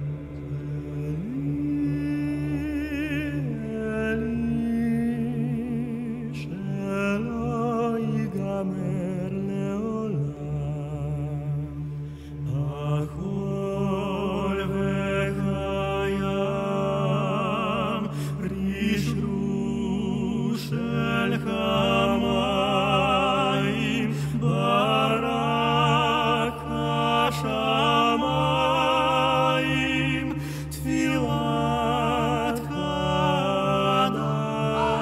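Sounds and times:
low drone: 0:00.0 - 0:35.0
men singing mournful melody: 0:12.5 - 0:35.0.

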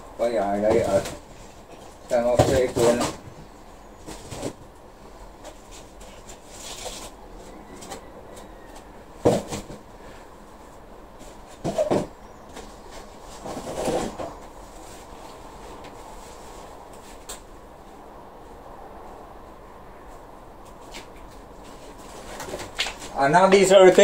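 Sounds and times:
plastic pots clattering: 0:00.5 - 0:03.4, 0:11.4 - 0:14.6.

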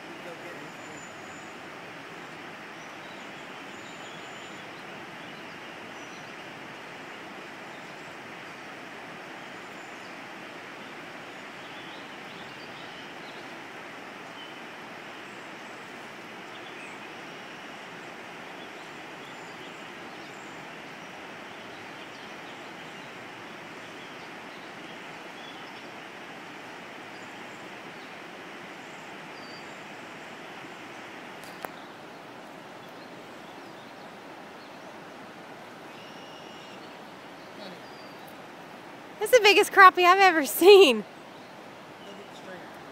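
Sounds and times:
faint bird chirps: 0:00.0 - 0:01.6, 0:02.8 - 0:06.5, 0:35.8 - 0:38.4
river rushing over riffles: 0:00.0 - 0:42.9.

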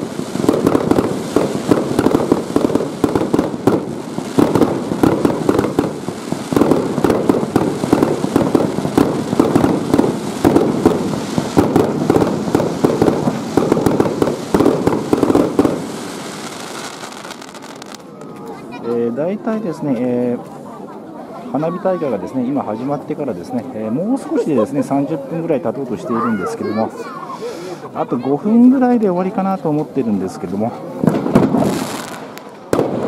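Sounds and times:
fireworks popping and banging: 0:00.0 - 0:18.8, 0:28.5 - 0:33.0.

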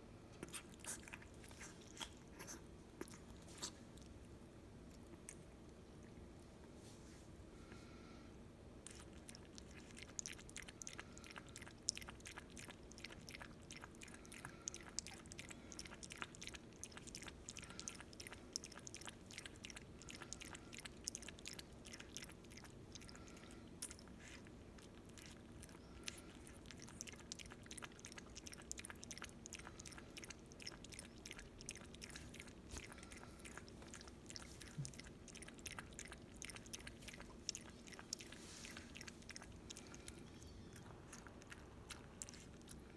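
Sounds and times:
puppy lapping water: 0:08.8 - 0:42.9.

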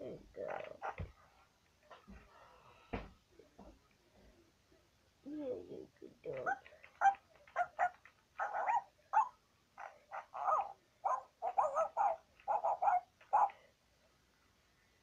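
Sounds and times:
high puppy-like yapping barks: 0:06.5 - 0:09.4, 0:10.1 - 0:13.6.

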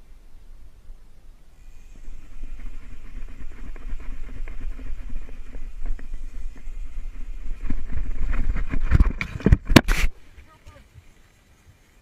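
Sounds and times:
wind buffeting microphone: 0:01.9 - 0:10.2.

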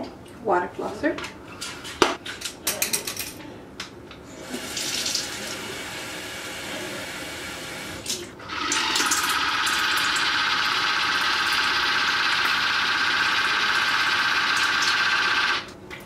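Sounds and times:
pump motor humming: 0:04.4 - 0:15.7
tap water running: 0:04.4 - 0:15.7.

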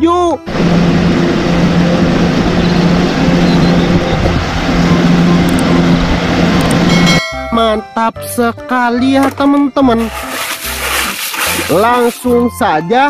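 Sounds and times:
diesel engine droning: 0:00.0 - 0:08.0
snow rushing noise: 0:10.0 - 0:12.2.

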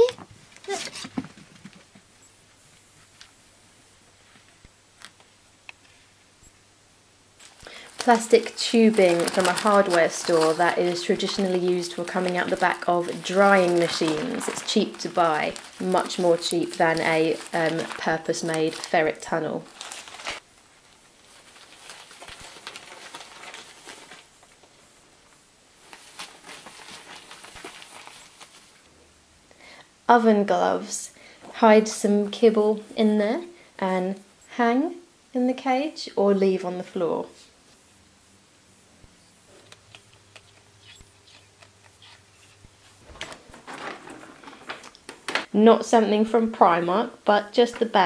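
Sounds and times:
animal rustling in fabric: 0:07.4 - 0:24.8, 0:25.8 - 0:28.8
claws pattering in plastic tubing: 0:07.4 - 0:24.8, 0:25.8 - 0:28.8, 0:39.7 - 0:45.5
plastic ducting crinkling: 0:07.4 - 0:25.0, 0:25.8 - 0:28.9, 0:39.5 - 0:45.6.

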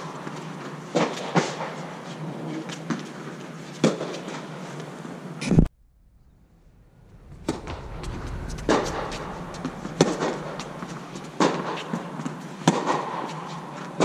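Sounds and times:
footsteps: 0:06.2 - 0:12.3.

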